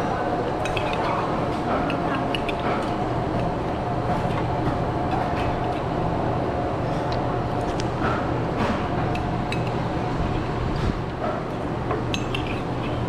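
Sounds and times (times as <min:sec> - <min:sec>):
mechanical hum: 0:00.0 - 0:13.0
dishes and spoons clinking: 0:00.6 - 0:04.5, 0:09.1 - 0:09.8, 0:11.3 - 0:13.0.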